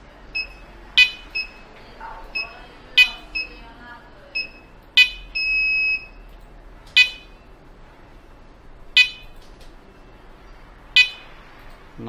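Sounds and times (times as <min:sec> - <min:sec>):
short sharp alarm beeps: 0:00.3 - 0:03.6, 0:04.3 - 0:06.3, 0:07.0 - 0:07.6, 0:08.9 - 0:10.2, 0:11.0 - 0:11.4
steady alarm beep: 0:00.3 - 0:06.4, 0:07.0 - 0:10.3, 0:10.9 - 0:11.5.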